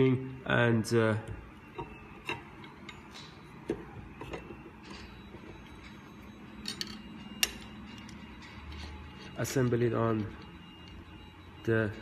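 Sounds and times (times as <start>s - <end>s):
faint steady hum: 0.0s - 12.0s
metal parts clicking and tapping: 1.7s - 9.4s.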